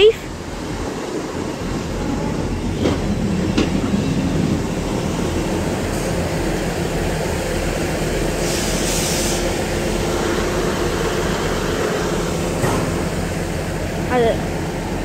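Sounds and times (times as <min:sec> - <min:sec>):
train rumbling past slowly: 0:00.0 - 0:15.0
burst of hiss: 0:08.4 - 0:09.6.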